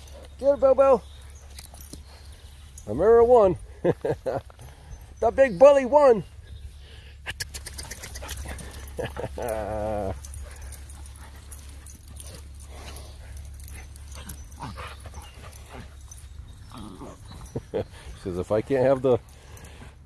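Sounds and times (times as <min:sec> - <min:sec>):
dog whine-growling: 0:16.6 - 0:17.6.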